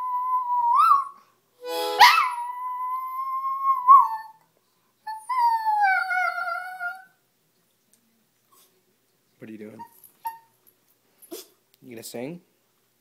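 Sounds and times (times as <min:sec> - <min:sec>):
harmonica: 0:01.6 - 0:02.1.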